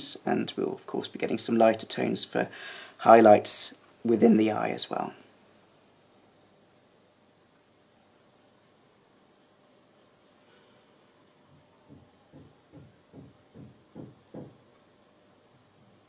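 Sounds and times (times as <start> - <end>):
paintbrush strokes on card: 4.7 - 16.0.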